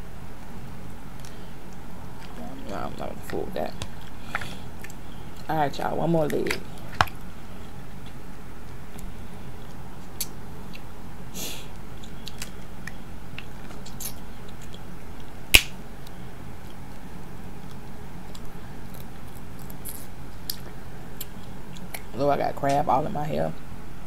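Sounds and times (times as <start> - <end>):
crab shells cracking: 15.5 - 15.8
shell snapping: 15.5 - 15.8.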